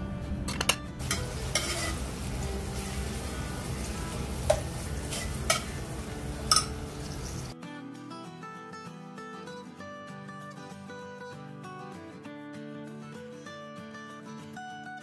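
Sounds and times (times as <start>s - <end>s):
metal spoon scraping pot: 1.0s - 2.4s, 4.5s - 7.5s
onions sizzling in oil: 1.0s - 7.6s.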